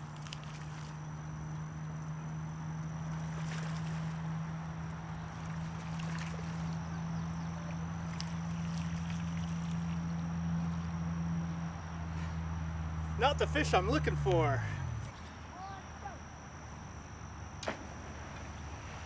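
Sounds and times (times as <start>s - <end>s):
fish splashing in water: 0.0s - 1.0s, 3.1s - 4.3s, 5.3s - 6.9s, 8.0s - 10.2s
steady low hum: 0.0s - 19.0s.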